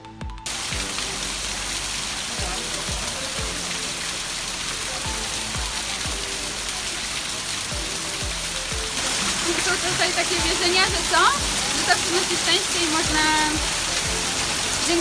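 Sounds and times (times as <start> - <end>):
music with steady beat: 0.0 - 1.4, 2.3 - 6.8, 7.7 - 12.2, 12.9 - 15.0
waterfall rushing: 0.5 - 15.0.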